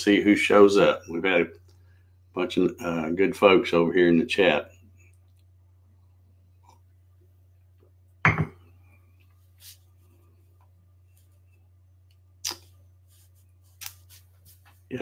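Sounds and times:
steady low hum: 0.0 - 15.0
ceramic mug knocking on desk: 8.2 - 8.6.

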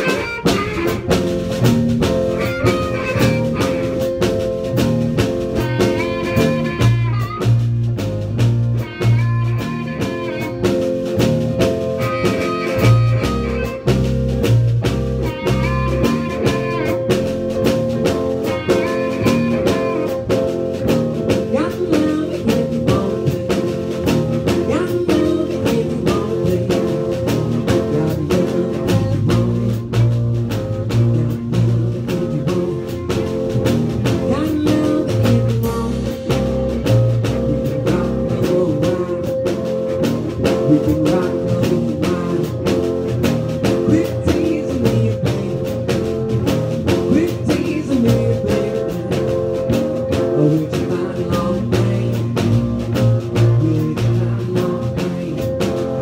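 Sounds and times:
amplified harmonica: 0.0 - 8.1, 8.7 - 14.2, 15.2 - 20.6
bass line: 0.0 - 56.0
drum kit beat: 0.0 - 56.0
electric guitar: 0.0 - 56.0.

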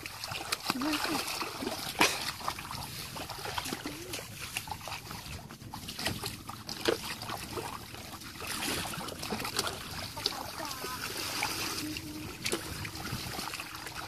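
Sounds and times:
bare feet squelching in muddy water: 0.0 - 14.0.

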